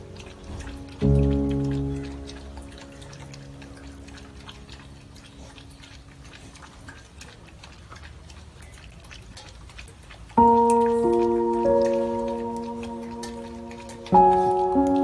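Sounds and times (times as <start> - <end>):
background music: 0.0 - 5.2
dog lapping from metal bowl: 0.0 - 15.0.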